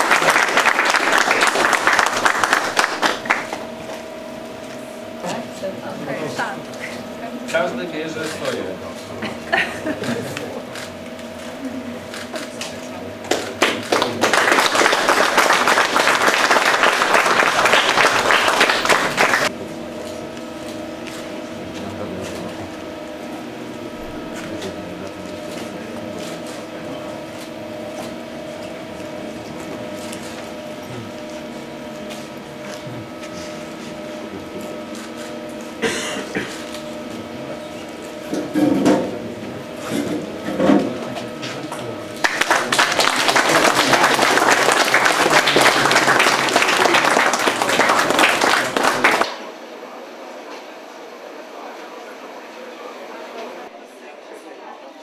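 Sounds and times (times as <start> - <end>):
audience applauding: 0.0 - 3.8, 13.2 - 19.6, 42.2 - 49.5
steady hum: 0.0 - 55.0.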